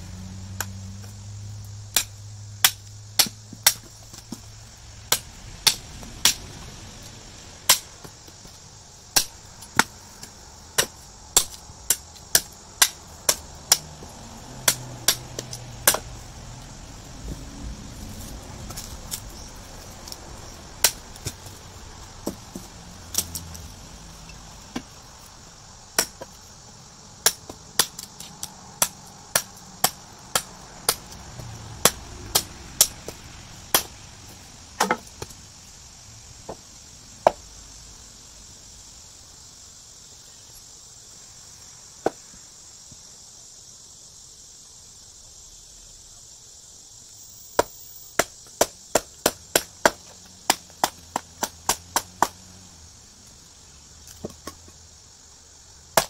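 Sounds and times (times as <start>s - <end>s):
high insect buzz: 0.0s - 56.0s
knife chopping wood: 1.9s - 4.5s, 7.7s - 16.1s, 20.8s - 21.4s, 26.0s - 26.4s, 27.2s - 31.2s, 31.8s - 34.0s, 34.8s - 35.3s, 47.6s - 52.5s, 54.0s - 54.7s.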